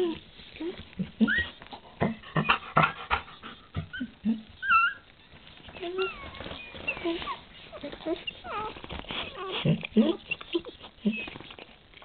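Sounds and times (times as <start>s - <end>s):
newborn puppy crying: 1.2s - 2.6s, 3.9s - 11.7s
soft clicks and rustling: 5.0s - 12.0s.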